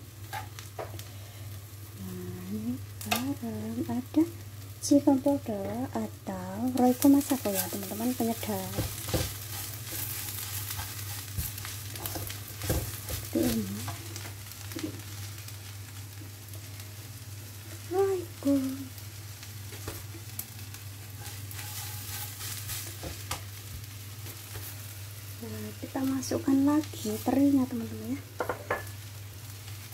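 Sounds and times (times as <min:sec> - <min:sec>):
leaves sizzling in a wok: 0:00.0 - 0:29.9
low steady hum: 0:00.0 - 0:29.9
spatula scraping and knocking wok: 0:00.2 - 0:01.0, 0:07.0 - 0:15.0, 0:21.0 - 0:23.5, 0:28.4 - 0:29.0.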